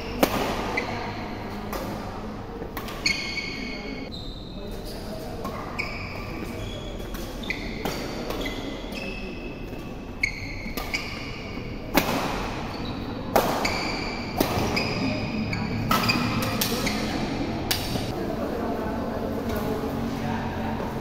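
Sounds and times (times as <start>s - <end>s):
rackets hitting shuttlecock: 0.0s - 3.8s, 7.0s - 8.9s, 9.7s - 18.1s
shoes squeaking on court: 0.0s - 18.1s.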